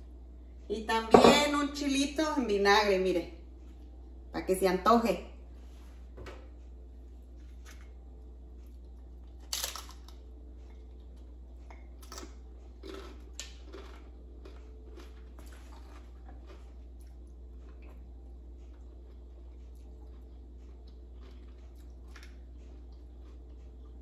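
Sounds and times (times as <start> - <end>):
crunching fried tostada: 8.8 - 24.0.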